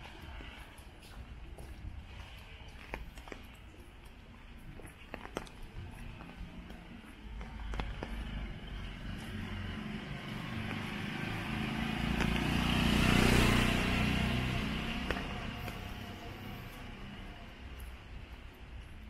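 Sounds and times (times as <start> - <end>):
car driving past on wet street: 7.7 - 17.9.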